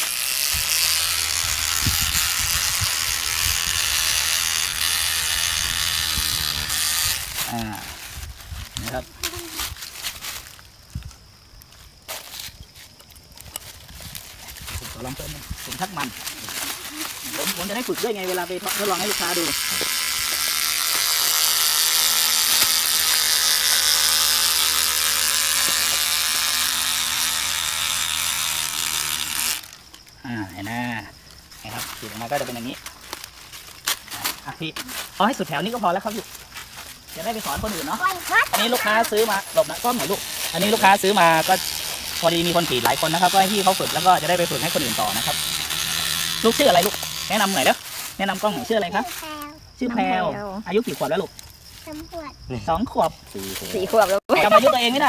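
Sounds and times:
electric knife whirring: 0:00.0 - 0:09.0, 0:14.1 - 0:30.0, 0:37.2 - 0:49.2.

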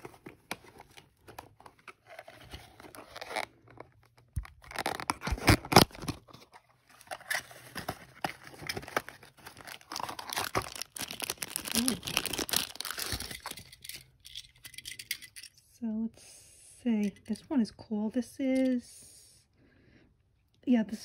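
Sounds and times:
cardboard box tearing and rustling: 0:01.6 - 0:03.6, 0:04.4 - 0:13.4.

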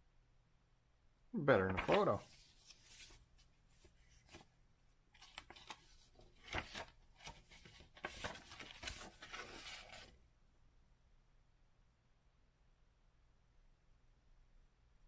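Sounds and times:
paper rustling and crinkling: 0:01.6 - 0:04.5, 0:05.2 - 0:10.2.

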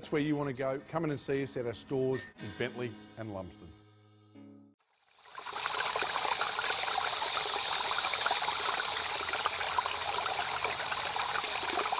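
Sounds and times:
trickling bubbling water: 0:05.0 - 0:11.9.

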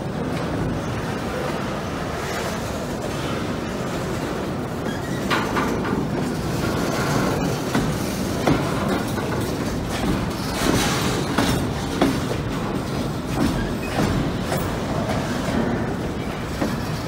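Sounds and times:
steel wheels rumbling on rail: 0:00.0 - 0:17.0
sharp clicks and knocks: 0:05.3 - 0:17.0.

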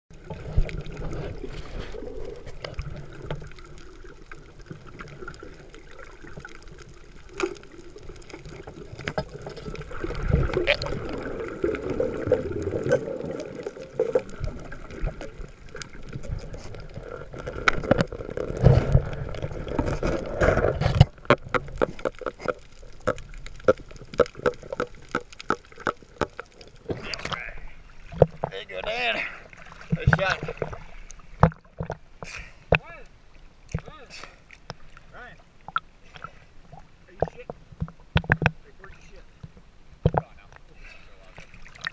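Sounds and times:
underwater water wash and bubbling: 0:00.1 - 0:41.9
underwater clicks and knocks: 0:08.2 - 0:11.2, 0:13.7 - 0:27.4, 0:28.1 - 0:29.0, 0:29.8 - 0:30.8, 0:31.4 - 0:32.9, 0:33.7 - 0:33.9, 0:35.6 - 0:38.6, 0:39.4 - 0:40.6.

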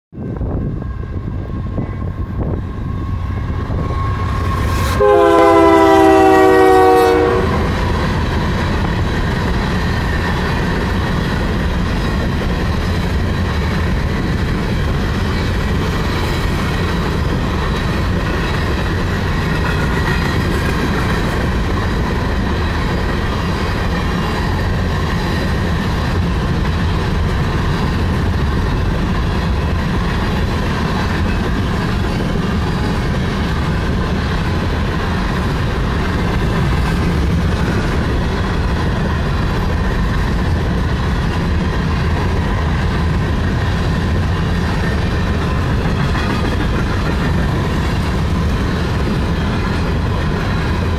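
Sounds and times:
train wheels rumbling and clacking: 0:00.2 - 0:50.9
locomotive horn blast: 0:02.8 - 0:08.0.

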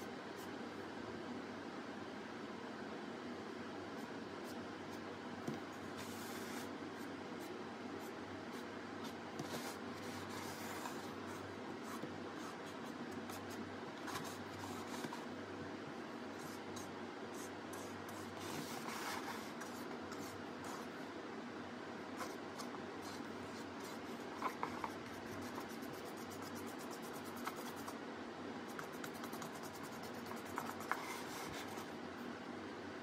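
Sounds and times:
steady low hum: 0:00.0 - 0:33.0
paintbrush scratching on mask: 0:28.7 - 0:31.9.

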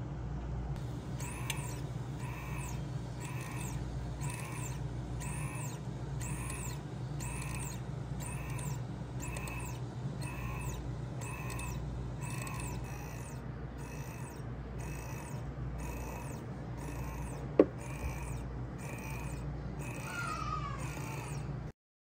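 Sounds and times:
coffee machine humming: 0:00.0 - 0:21.7.

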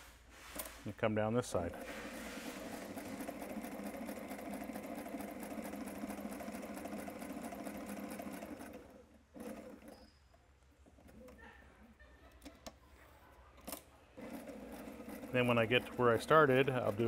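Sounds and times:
sewing machine running: 0:01.7 - 0:10.0, 0:13.7 - 0:17.0.

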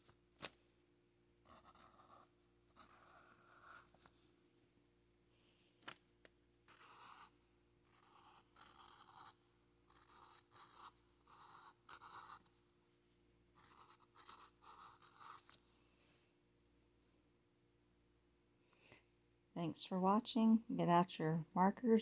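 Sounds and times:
marker scratching on paper: 0:01.4 - 0:04.1, 0:06.7 - 0:12.5, 0:13.6 - 0:15.6.

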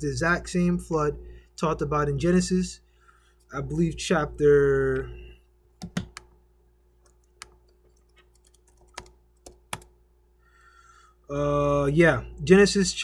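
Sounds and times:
faint electrical hum: 0:00.0 - 0:13.0
computer keyboard keys clicking: 0:05.8 - 0:06.3, 0:07.0 - 0:09.9.

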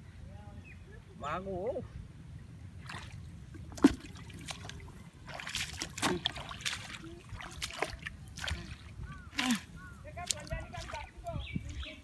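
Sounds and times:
splashing in shallow muddy water: 0:02.7 - 0:12.0.

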